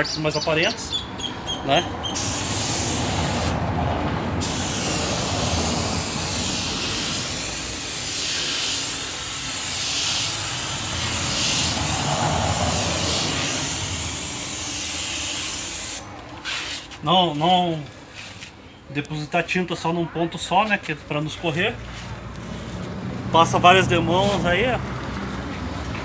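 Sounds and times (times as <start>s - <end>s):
paint spray gun hissing: 2.2s - 3.6s, 4.4s - 16.1s.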